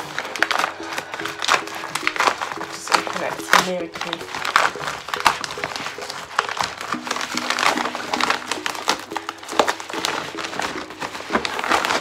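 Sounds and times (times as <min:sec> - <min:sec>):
bubble mailer crinkling: 0:00.0 - 0:12.0
quiet background music: 0:00.0 - 0:12.0.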